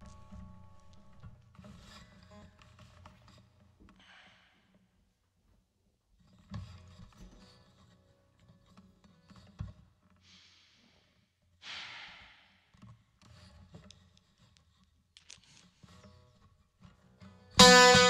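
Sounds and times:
person breathing: 10.2s - 12.7s
acoustic guitar strummed chord: 17.6s - 18.0s.

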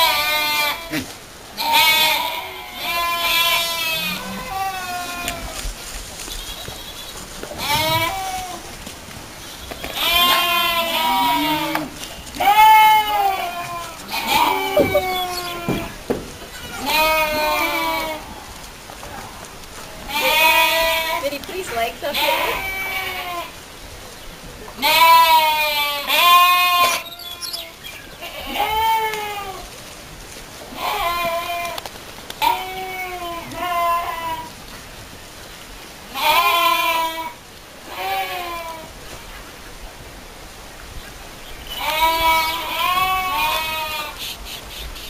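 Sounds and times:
goats bleating: 0.0s - 5.6s, 7.6s - 8.8s, 9.8s - 18.4s, 20.0s - 23.6s, 24.8s - 29.7s, 30.7s - 31.8s, 36.1s - 38.9s, 41.7s - 44.2s.

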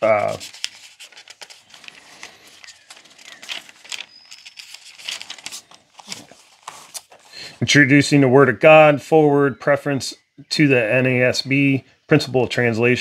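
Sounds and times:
book pages turning: 0.0s - 7.6s.

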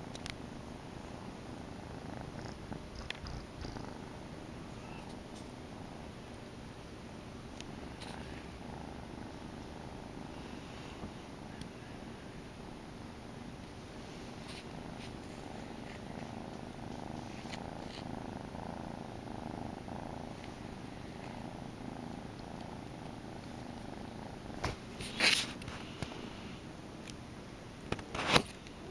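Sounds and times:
kitten purring: 1.0s - 6.3s, 7.4s - 12.3s, 14.0s - 26.7s.

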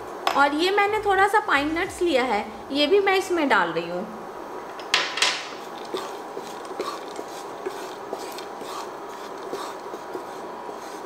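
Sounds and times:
spatula stirring nuts in a pan: 5.6s - 11.0s.

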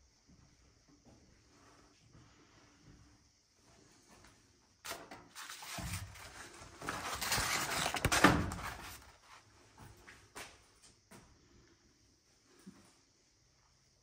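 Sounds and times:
scraping and rustling: 5.3s - 9.4s.

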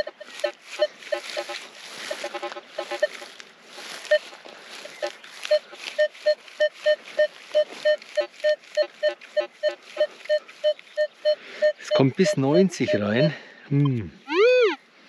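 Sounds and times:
lower detector tone: 0.0s - 3.3s, 4.0s - 14.8s
metal detector beeping: 0.0s - 3.3s, 3.9s - 14.8s.

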